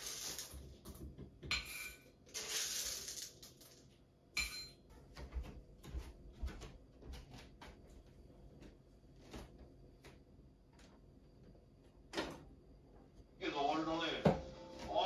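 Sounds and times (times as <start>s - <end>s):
coffee beans rattling: 0.0s - 0.6s, 2.3s - 3.9s.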